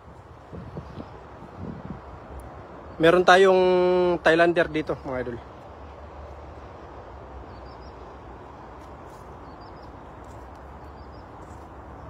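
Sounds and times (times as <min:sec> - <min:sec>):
faint high bird chirps: 0:07.4 - 0:08.1, 0:09.2 - 0:11.6.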